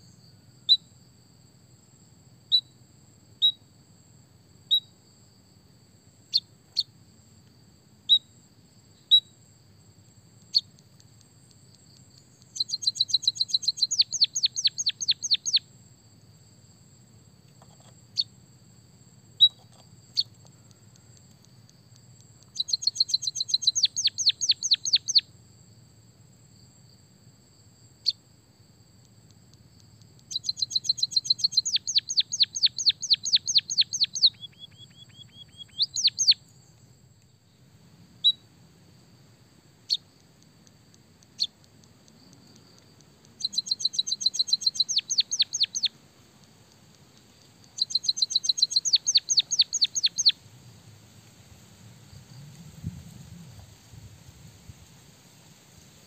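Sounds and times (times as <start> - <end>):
bird chips: 41.2 - 50.4.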